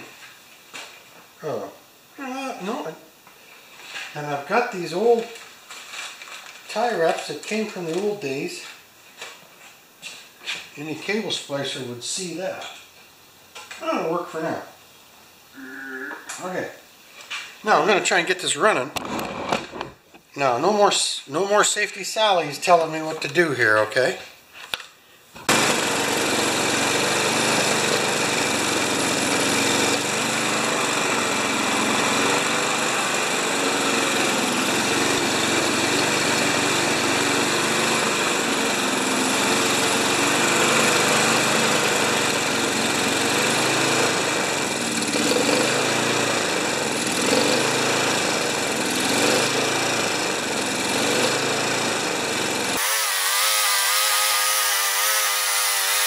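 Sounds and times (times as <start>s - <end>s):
lawn mower engine running: 25.5s - 56.0s.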